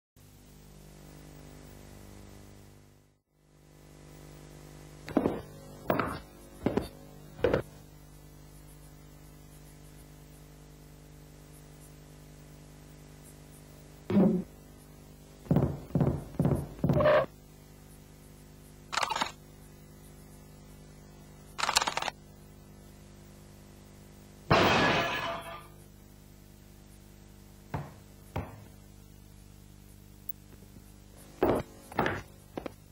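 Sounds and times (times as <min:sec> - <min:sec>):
steady low hum: 0:00.2 - 0:32.9.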